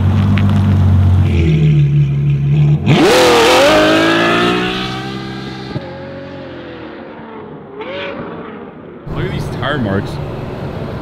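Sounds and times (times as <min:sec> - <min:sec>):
car engine revving: 0:00.0 - 0:09.6.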